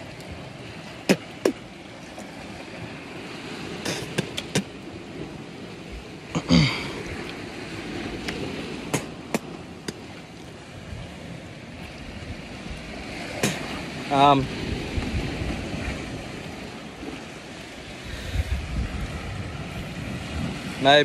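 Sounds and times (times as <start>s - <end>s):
wind on microphone: 0.0s - 21.0s.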